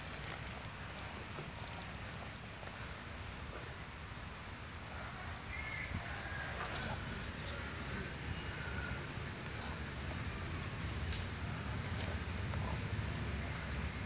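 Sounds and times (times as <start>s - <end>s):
faint ticks: 0.0s - 2.8s.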